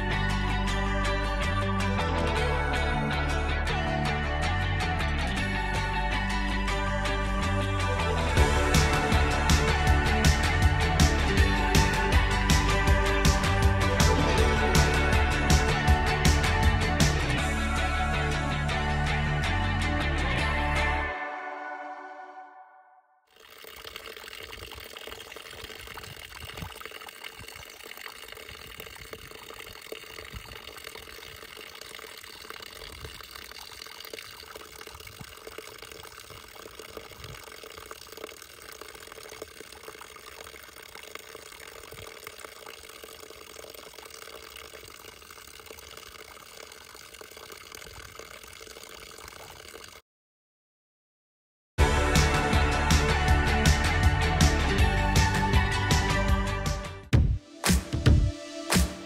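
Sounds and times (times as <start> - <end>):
running water rushing: 23.3 - 50.0.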